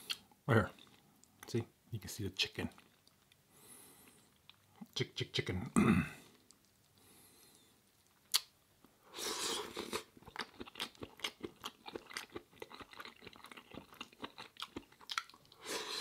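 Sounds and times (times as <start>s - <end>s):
mouth chewing with wet smacking: 2.7s - 3.5s, 7.8s - 8.5s, 9.6s - 15.6s.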